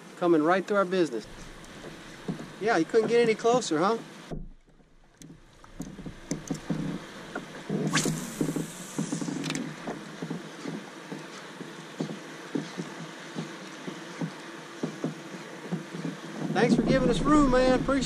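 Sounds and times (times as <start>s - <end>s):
waves lapping against kayak: 1.2s - 10.0s, 16.7s - 18.0s.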